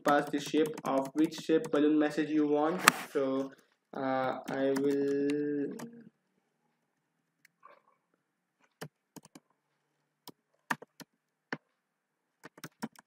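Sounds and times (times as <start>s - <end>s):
keyboard keystrokes: 0.0s - 1.8s, 4.4s - 6.0s, 12.4s - 13.0s.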